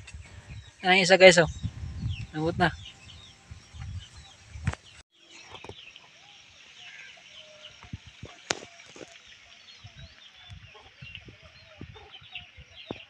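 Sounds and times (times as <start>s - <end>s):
chickens clucking: 10.5s - 12.2s.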